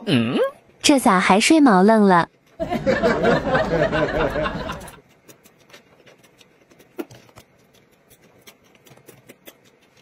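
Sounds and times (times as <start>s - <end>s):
chopsticks clicking while eating: 4.8s - 10.0s.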